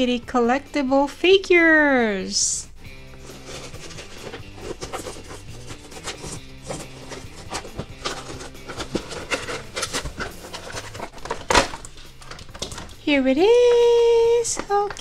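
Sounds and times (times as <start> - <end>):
plastic packaging crinkling: 3.1 - 13.0.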